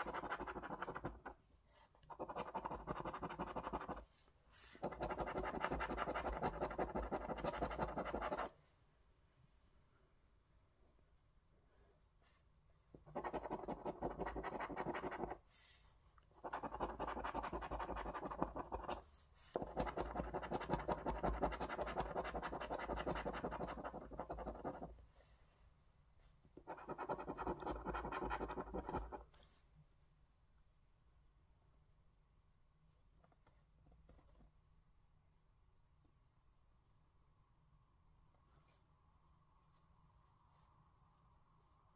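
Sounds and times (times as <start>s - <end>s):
coin scratching scratchcard: 0.0s - 1.3s, 16.4s - 19.0s.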